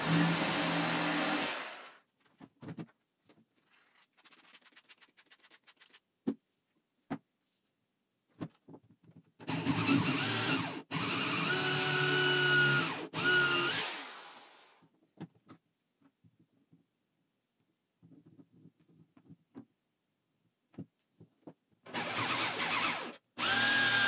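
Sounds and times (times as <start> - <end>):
electric drill boring: 0.0 - 2.0, 9.5 - 14.8, 21.9 - 24.0.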